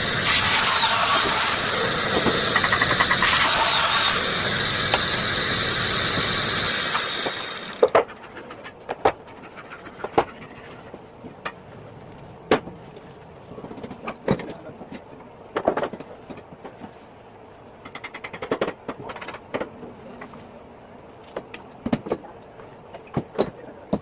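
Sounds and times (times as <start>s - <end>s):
circular saw cutting board: 0.0s - 8.6s.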